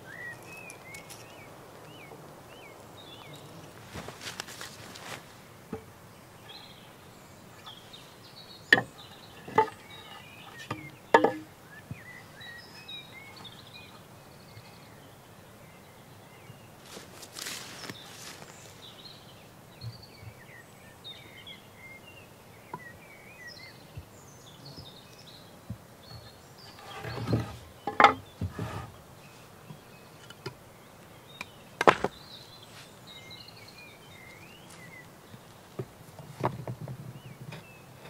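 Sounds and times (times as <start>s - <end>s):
small birds chirping: 0.0s - 38.0s
scraping rustle: 3.2s - 5.4s, 16.8s - 18.9s, 26.6s - 29.5s
wooden beam and stones knocking: 8.7s - 9.9s, 10.6s - 11.5s, 26.7s - 28.9s, 31.8s - 32.2s.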